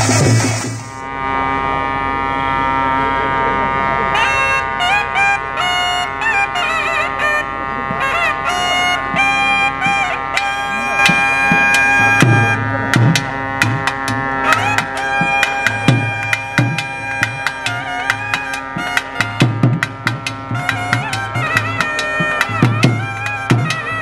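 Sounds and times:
sharp percussion strikes: 0:00.0 - 0:01.1, 0:07.9 - 0:24.0
steady drone: 0:00.0 - 0:24.0
wind instrument melody: 0:00.0 - 0:24.0.

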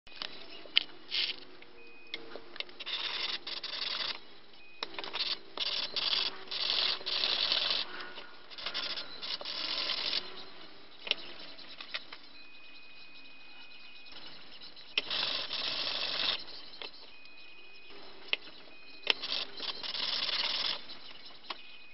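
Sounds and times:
sharp clicks: 0:18.3 - 0:21.7.

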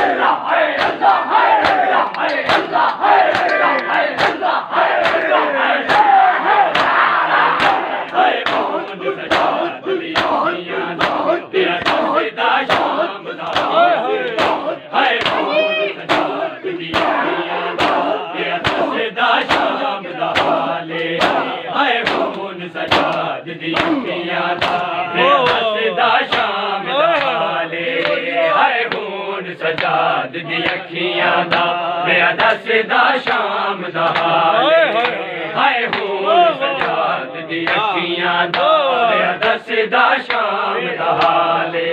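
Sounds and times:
men chanting in mourning: 0:00.0 - 0:41.9
chest-beating slaps: 0:01.6 - 0:06.1, 0:06.7 - 0:07.0, 0:07.6 - 0:25.7.

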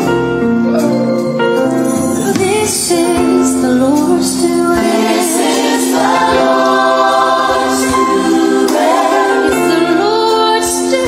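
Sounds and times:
gospel music: 0:00.0 - 0:11.0
choir singing long held notes: 0:04.7 - 0:10.8.

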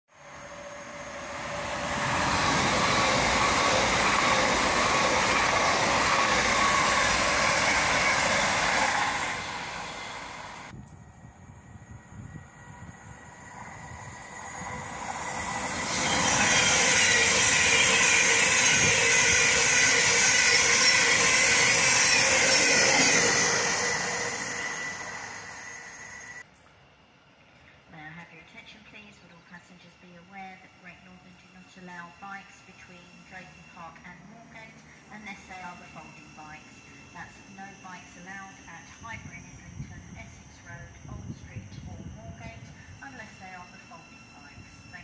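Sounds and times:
trains passing at speed: 0:00.1 - 0:26.4, 0:30.3 - 0:45.0.

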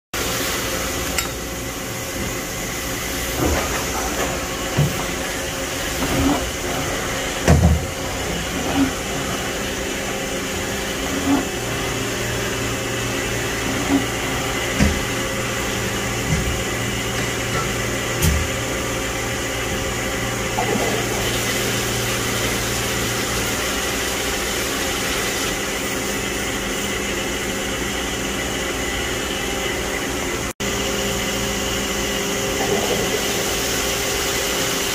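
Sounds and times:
machine hum with held tones: 0:00.2 - 0:34.9
lower hum: 0:00.7 - 0:19.2.

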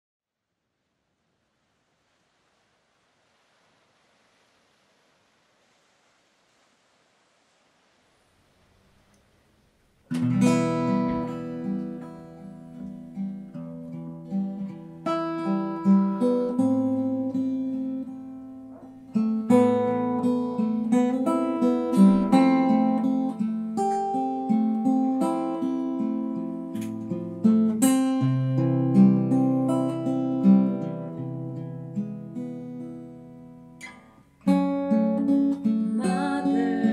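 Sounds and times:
acoustic guitar strumming: 0:10.1 - 0:36.9.

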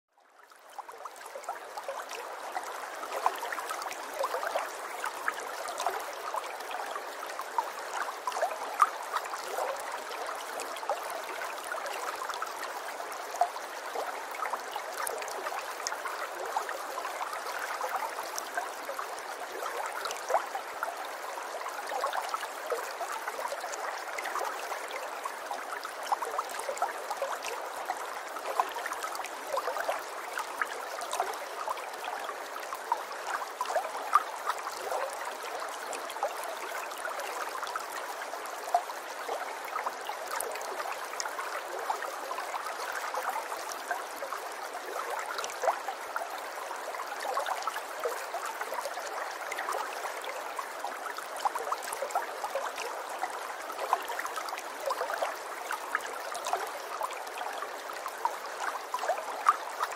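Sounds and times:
water trickling and babbling: 0:00.1 - 0:59.9.

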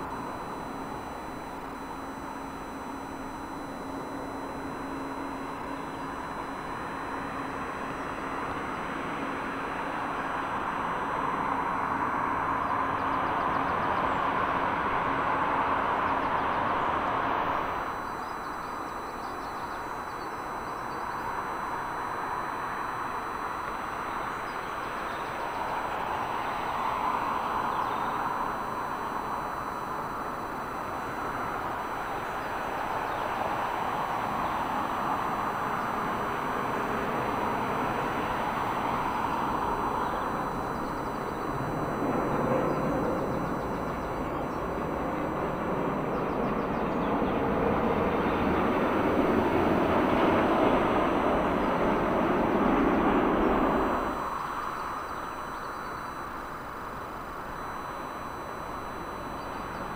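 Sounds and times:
jet airliners landing: 0:47.6 - 0:54.1.

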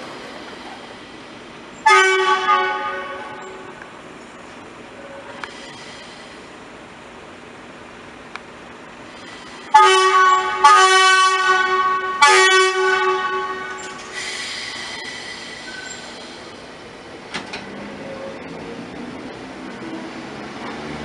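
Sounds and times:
train rumble and rail noise: 0:00.0 - 0:21.0
train horn blast: 0:01.8 - 0:03.8, 0:09.7 - 0:14.1.

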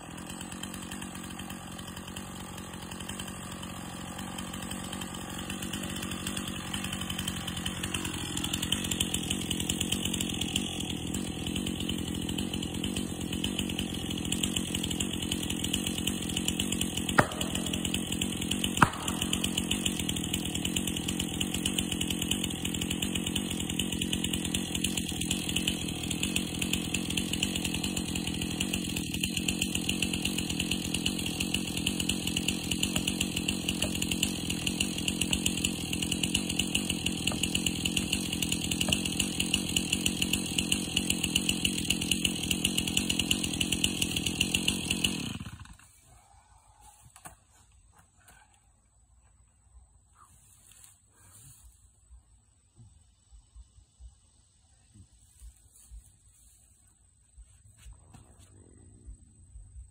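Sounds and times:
chainsaw idling: 0:00.0 - 0:46.0.

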